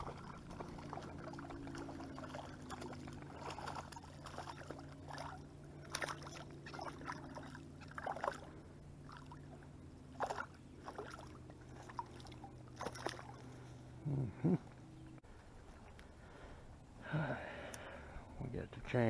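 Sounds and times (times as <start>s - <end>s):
water splashing as person wades: 0.0s - 13.8s
steady low hum: 0.0s - 19.0s.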